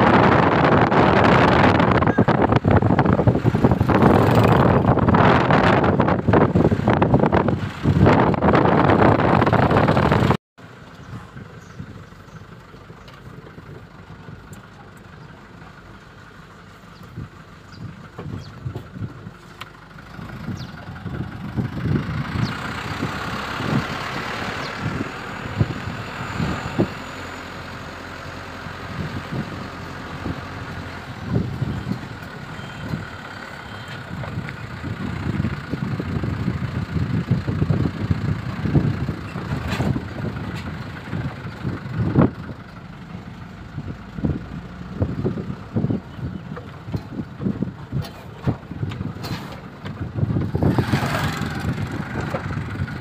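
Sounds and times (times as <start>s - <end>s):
wind rush on microphone: 0.0s - 10.4s, 20.2s - 27.2s, 28.8s - 33.2s, 33.9s - 42.7s, 43.7s - 53.0s
vehicle engine running: 0.0s - 53.0s.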